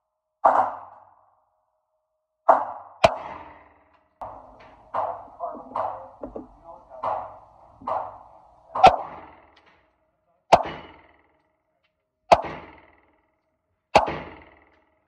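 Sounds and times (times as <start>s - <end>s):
pistol shots echoing indoors: 0.4s - 1.2s, 2.4s - 9.7s, 10.5s - 11.4s, 12.3s - 14.8s.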